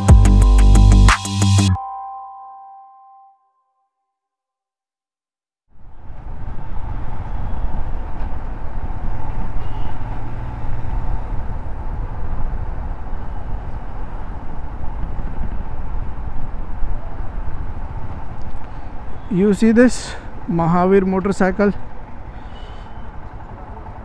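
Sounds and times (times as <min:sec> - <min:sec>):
traffic engines rumbling: 0:05.8 - 0:24.0.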